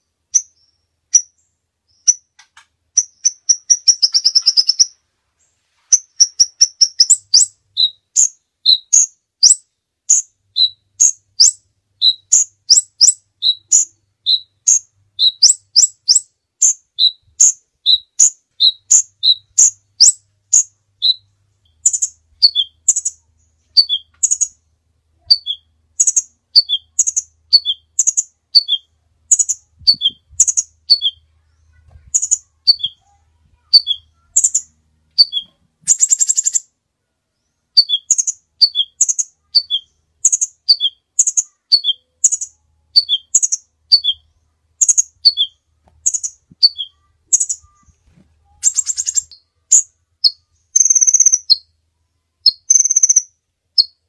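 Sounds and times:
bird chirping: 0.0 - 51.8, 52.4 - 54.0
bird buzzy trill: 3.0 - 5.0, 25.2 - 36.7, 37.8 - 51.7, 52.4 - 54.0.

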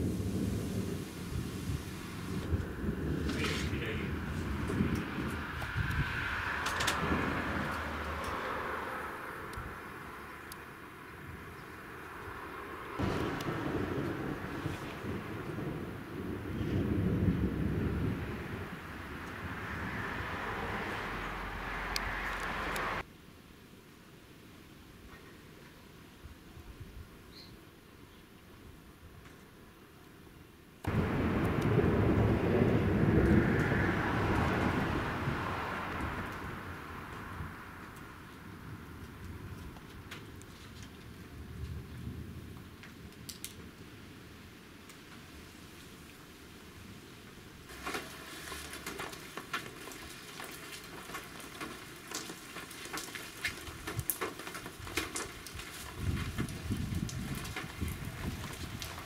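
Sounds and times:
raindrops ticking on hard surfaces: 0.0 - 8.7, 13.0 - 23.1, 30.8 - 59.0
thunder rumbling: 0.0 - 10.2, 12.9 - 23.0, 30.9 - 40.4, 54.8 - 59.0
low rumble: 30.9 - 37.8.

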